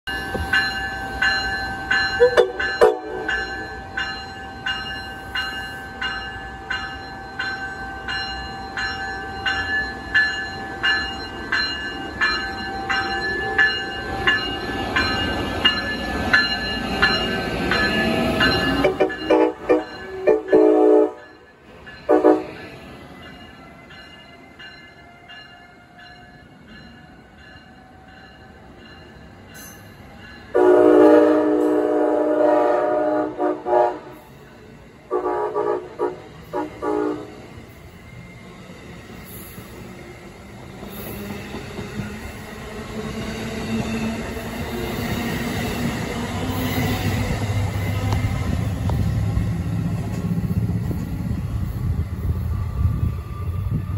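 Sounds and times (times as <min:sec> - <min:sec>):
train wheels rumbling on rails: 0:00.1 - 0:53.9
locomotive air horn: 0:02.3 - 0:03.3, 0:18.8 - 0:21.2, 0:22.1 - 0:22.6, 0:30.6 - 0:34.2, 0:35.1 - 0:37.4.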